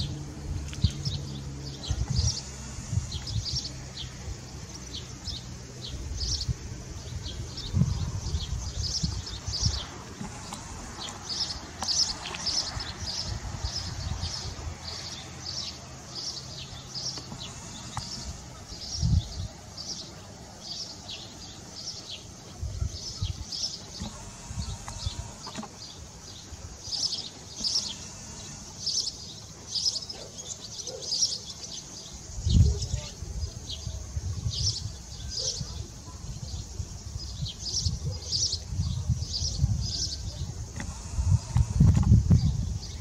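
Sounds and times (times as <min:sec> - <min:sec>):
low rumbles: 0:00.0 - 0:19.9
small birds chirping: 0:00.0 - 0:43.0.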